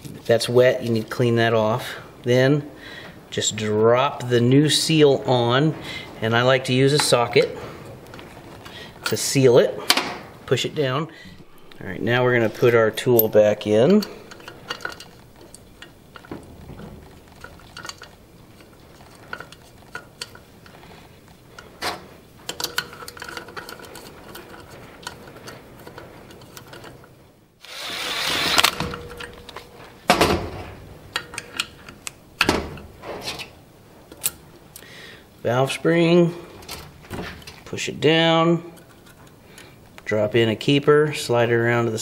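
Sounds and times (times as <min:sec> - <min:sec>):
metal scraping: 0:04.0 - 0:10.6, 0:11.3 - 0:27.0.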